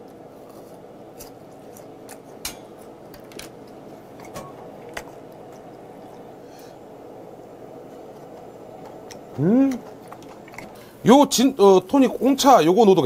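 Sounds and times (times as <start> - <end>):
person chewing food: 7.9 - 11.0.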